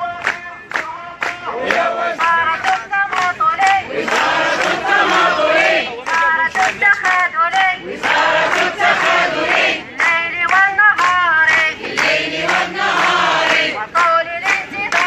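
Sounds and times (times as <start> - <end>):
crowd chanting slogans: 0.0 - 15.0.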